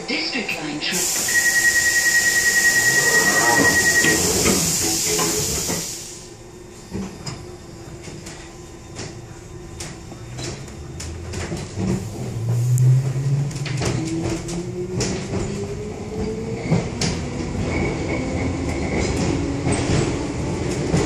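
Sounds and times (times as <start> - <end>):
loud air hiss: 0.9 - 6.4
train clicks and knocks: 6.8 - 21.0.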